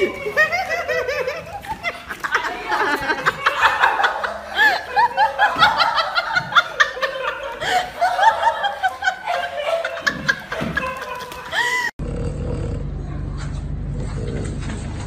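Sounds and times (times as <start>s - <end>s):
person giggling: 0.0s - 11.9s.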